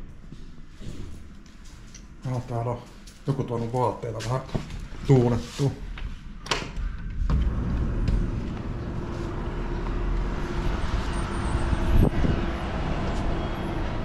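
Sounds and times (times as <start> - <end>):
passing vehicle: 7.3 - 14.0
city traffic noise: 7.4 - 14.0.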